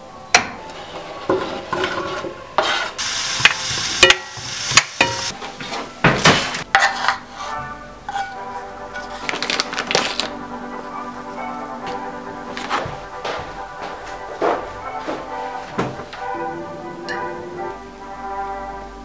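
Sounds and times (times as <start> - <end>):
spatula knocking and scraping a pan: 0.4 - 9.2
vegetables sizzling in a frying pan: 2.6 - 5.4.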